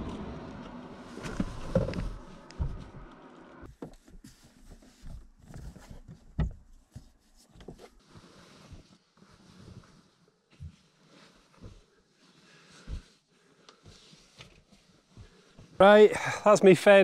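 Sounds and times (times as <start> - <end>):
fabric rustling: 3.6 - 15.8.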